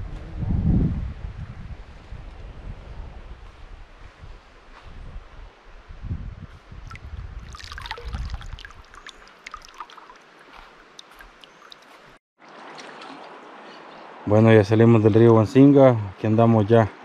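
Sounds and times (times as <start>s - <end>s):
wind rumbling on microphone: 0.0s - 9.9s
sharp water drips: 6.8s - 13.9s
river water trickling and splashing: 6.8s - 14.4s
flowing river water hiss: 7.4s - 14.3s.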